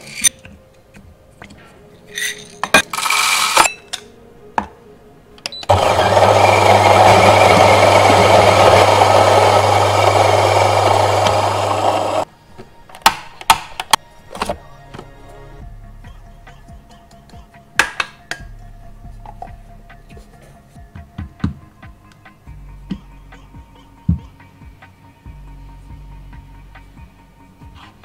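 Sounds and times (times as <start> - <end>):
coffee beans rattling: 2.1 - 3.7
coffee grinder motor: 5.7 - 12.2.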